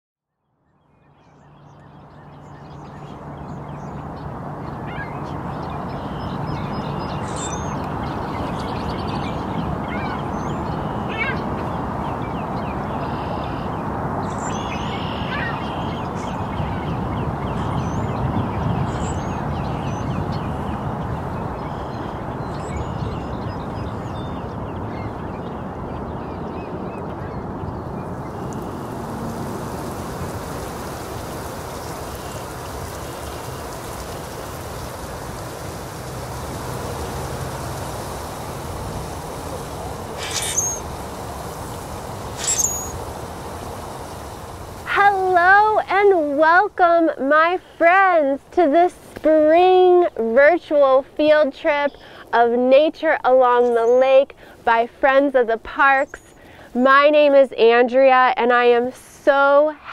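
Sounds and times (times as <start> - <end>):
birds chirping and whistling: 1.2 - 29.0, 40.1 - 40.9, 42.2 - 43.0.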